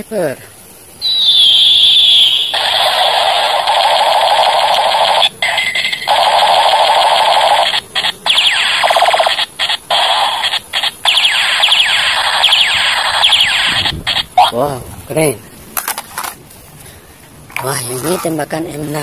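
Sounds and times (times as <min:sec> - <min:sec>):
falling whistle-like tones: 0:01.0 - 0:03.0, 0:10.4 - 0:14.5
toy gun buzzing rapid-fire effect: 0:01.7 - 0:14.5.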